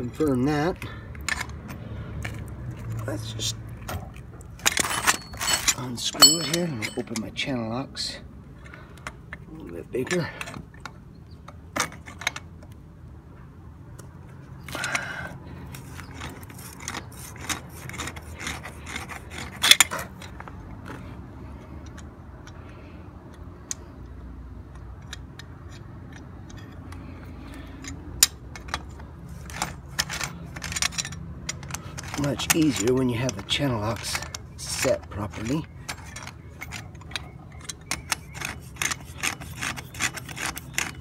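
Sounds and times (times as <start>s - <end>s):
pliers clinking on metal nut: 4.6s - 7.4s, 29.5s - 41.0s.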